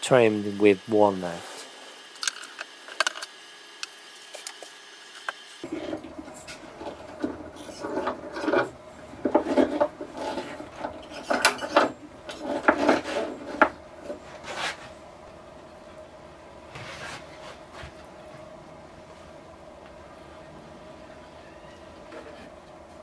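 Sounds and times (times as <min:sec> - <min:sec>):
metal pipe clamps clicking and knocking: 0:07.2 - 0:13.7.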